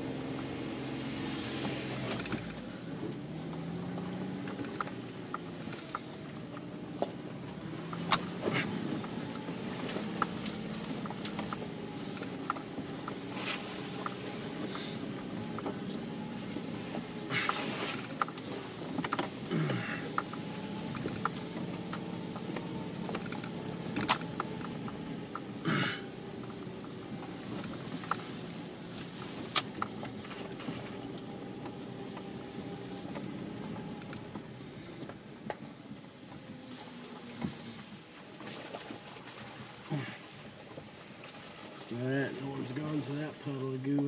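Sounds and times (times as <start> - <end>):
car engine running from inside cabin: 0.0 - 38.0, 41.8 - 44.0
vehicle knocking and rattling: 1.8 - 36.5.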